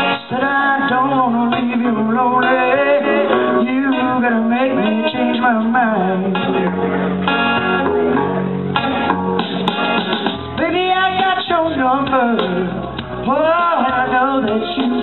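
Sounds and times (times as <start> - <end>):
person singing into microphone: 0.0 - 7.2, 10.6 - 15.0
guitar accompaniment: 0.0 - 15.0.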